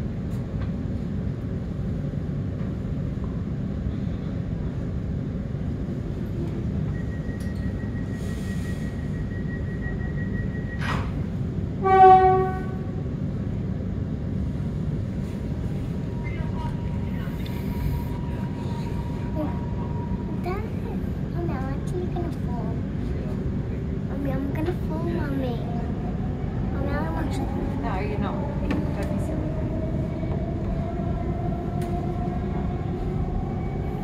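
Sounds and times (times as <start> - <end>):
train equipment low rumble: 0.0 - 34.0
train horn toot: 11.8 - 13.1.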